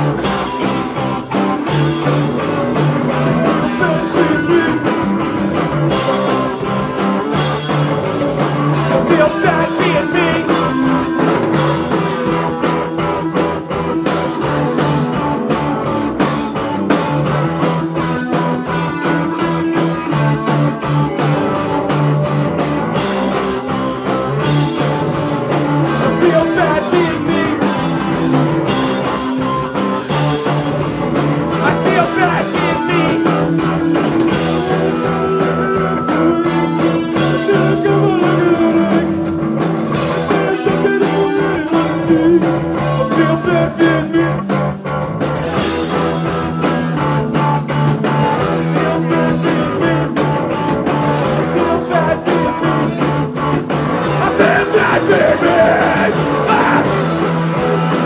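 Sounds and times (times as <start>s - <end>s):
punk rock band playing: 0.0s - 58.0s
person singing: 2.3s - 6.5s, 7.8s - 13.2s, 25.9s - 29.3s, 31.5s - 44.7s, 45.9s - 53.2s, 54.0s - 57.4s.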